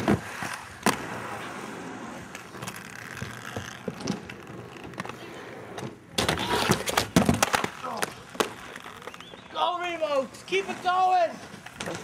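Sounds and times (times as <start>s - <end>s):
skateboard scraping and knocking ledge: 0.0s - 9.4s
skate wheels rolling over concrete: 0.0s - 12.0s.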